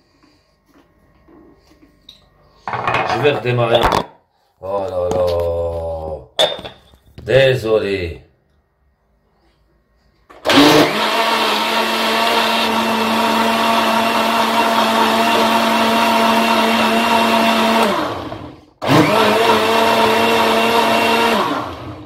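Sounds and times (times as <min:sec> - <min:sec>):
blender motor running: 0:10.3 - 0:22.0.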